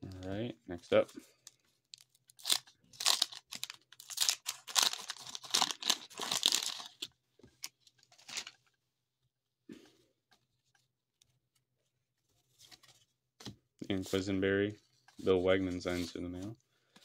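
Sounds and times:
waxed paper tearing and crinkling: 0:02.3 - 0:07.0.

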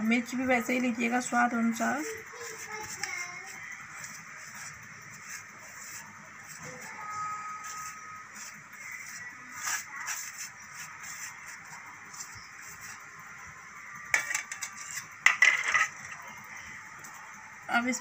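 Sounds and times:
fingers scraping powder on steel: 0:02.0 - 0:07.0, 0:07.6 - 0:13.1.

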